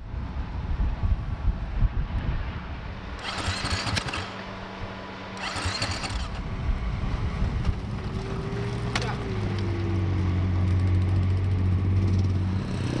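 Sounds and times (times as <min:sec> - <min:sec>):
motorcycle starter cranking: 0:03.2 - 0:04.4, 0:05.4 - 0:06.4.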